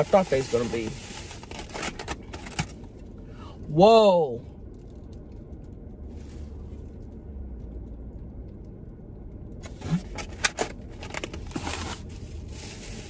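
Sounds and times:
paper wrappers crinkling: 0.0 - 2.6
low hum inside car: 0.0 - 13.0.

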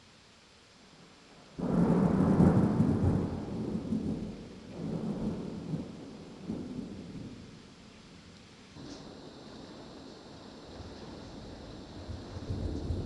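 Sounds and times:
thunder clap and rumble: 1.6 - 7.6, 11.9 - 13.0.

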